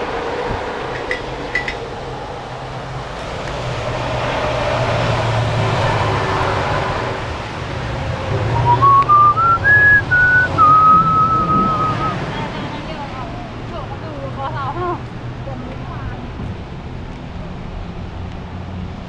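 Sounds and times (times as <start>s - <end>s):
traffic on wet street: 0.0s - 19.0s
person whistling a tune: 8.6s - 12.2s.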